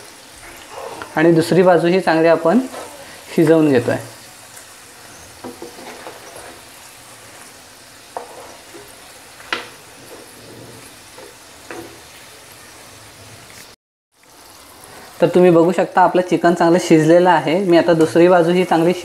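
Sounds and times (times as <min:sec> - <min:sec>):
food sizzling in hot oil: 0:00.0 - 0:19.0.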